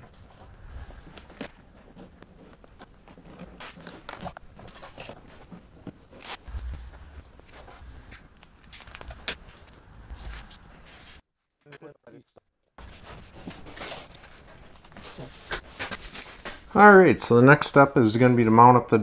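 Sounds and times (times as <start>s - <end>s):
rubber gasket rustling and scraping: 0.0s - 11.2s.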